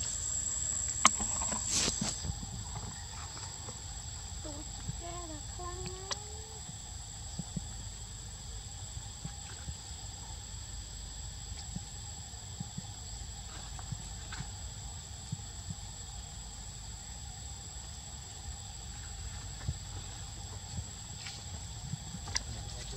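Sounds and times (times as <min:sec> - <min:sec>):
high-pitched insect drone: 0:00.0 - 0:22.9
faint ticks: 0:04.5 - 0:06.6.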